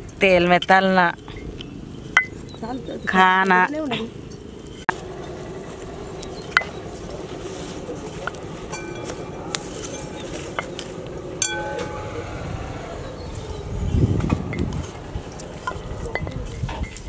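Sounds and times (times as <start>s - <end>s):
glass bangles clinking: 0.5s - 7.5s, 8.2s - 12.2s, 14.8s - 17.0s.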